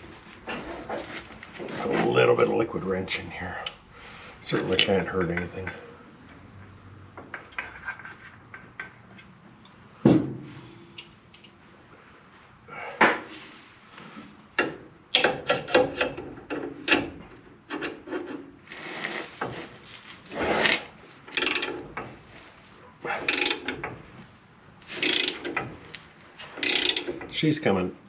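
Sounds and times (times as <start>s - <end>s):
metal clinks and scrapes: 18.9s - 21.9s, 24.9s - 25.6s
ratchet clicks: 21.3s - 21.8s, 23.2s - 23.9s, 25.0s - 25.7s, 26.5s - 27.3s.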